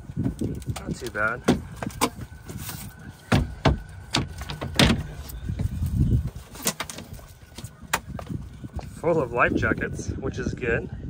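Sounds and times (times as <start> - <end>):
hatch lids knocking shut: 3.2 - 5.6.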